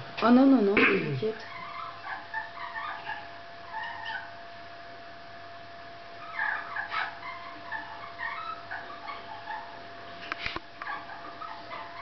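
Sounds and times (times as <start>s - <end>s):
faint steady hum tone: 0.0s - 12.0s
small animal whimpering squeaks: 1.4s - 4.3s, 6.2s - 9.8s, 10.8s - 12.0s.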